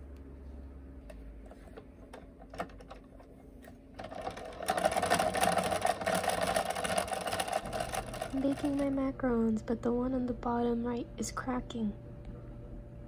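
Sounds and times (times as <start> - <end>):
small machine whirring: 1.3 - 10.5.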